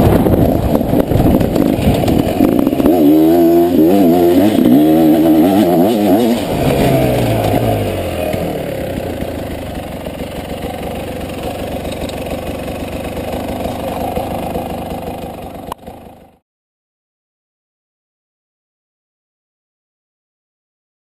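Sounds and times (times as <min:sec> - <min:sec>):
motorbike engine revs falling: 0:00.0 - 0:16.2
motorbike engine at low revs: 0:00.0 - 0:16.4.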